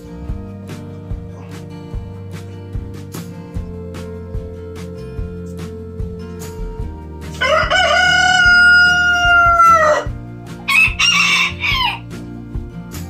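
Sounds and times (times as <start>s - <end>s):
background music: 0.0s - 13.0s
rooster crowing: 7.3s - 12.1s.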